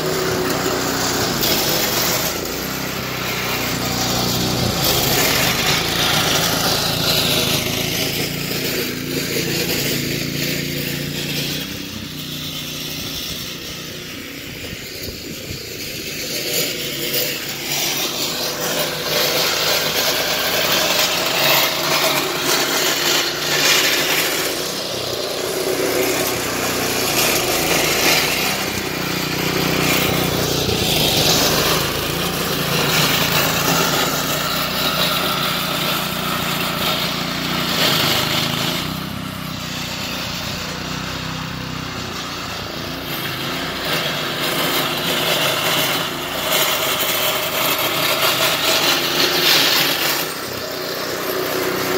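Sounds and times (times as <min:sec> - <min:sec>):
power rake engine humming: 0:00.0 - 0:51.9
blades ripping through dead grass: 0:16.8 - 0:36.4.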